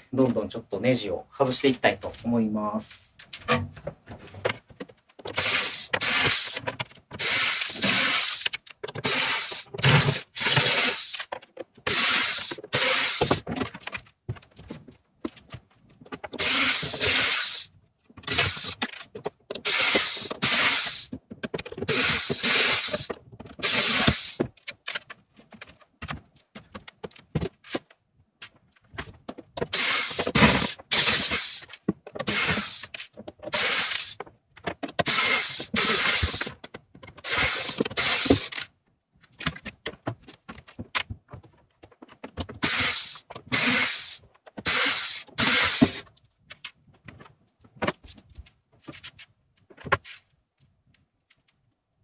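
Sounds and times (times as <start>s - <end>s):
clicks and knocks of wood: 3.1s - 51.8s
electric drill running in bursts: 16.4s - 17.6s, 19.7s - 21.0s, 21.9s - 23.0s, 23.6s - 24.4s, 29.8s - 31.6s, 32.3s - 32.8s, 33.6s - 34.2s, 35.1s - 36.4s, 42.6s - 46.0s.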